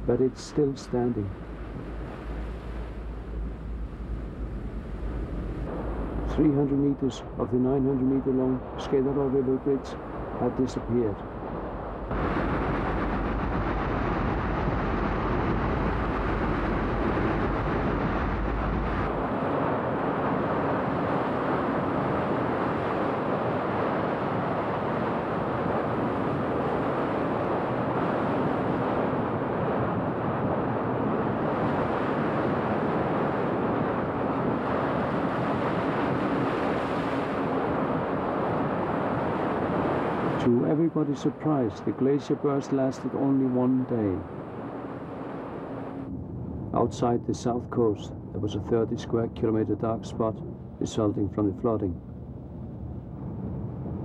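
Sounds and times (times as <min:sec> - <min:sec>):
deep rumble: 0:00.0 - 0:21.9, 0:37.2 - 0:54.0.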